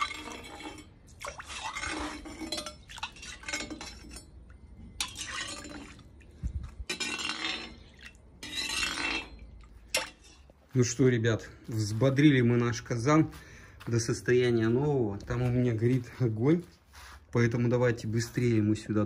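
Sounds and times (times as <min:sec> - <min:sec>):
oil sloshing in iron pot: 0:00.0 - 0:10.7.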